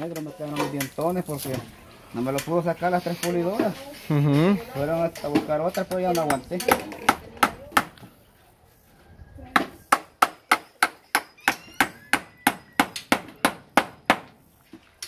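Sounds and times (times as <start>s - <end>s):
hammer striking nails into wood: 9.6s - 14.4s.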